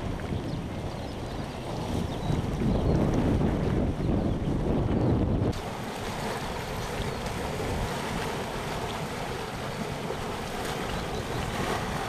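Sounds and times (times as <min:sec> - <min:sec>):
water rushing into a pool: 0:05.5 - 0:12.0.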